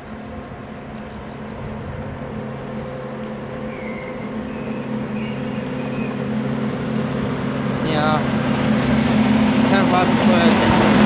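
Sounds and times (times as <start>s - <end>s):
high steady squeal: 2.8s - 11.0s.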